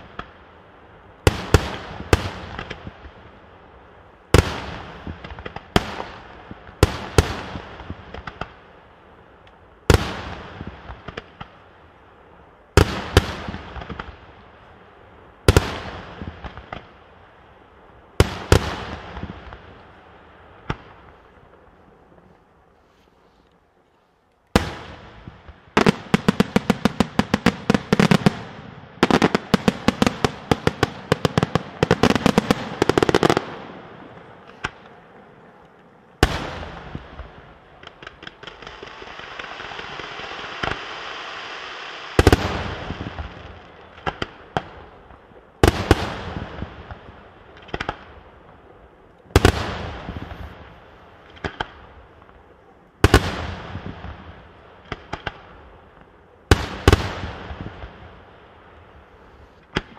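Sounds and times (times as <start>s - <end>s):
rapid-fire firework volleys: 36.2s - 48.6s, 49.4s - 58.1s
firework fountain hissing: 38.6s - 43.3s.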